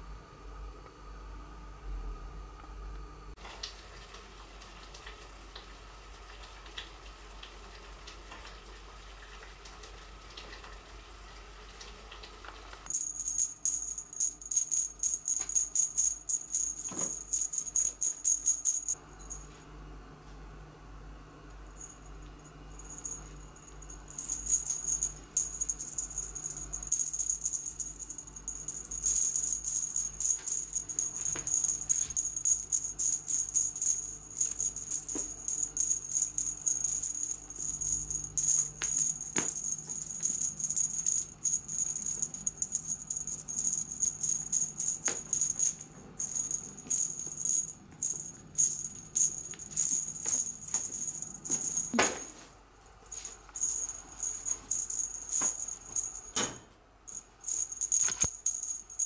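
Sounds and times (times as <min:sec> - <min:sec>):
small metal bell jingling: 0:12.9 - 0:19.5, 0:21.8 - 0:22.1, 0:22.7 - 0:52.3, 0:53.1 - 0:56.4, 0:57.1 - 0:59.0.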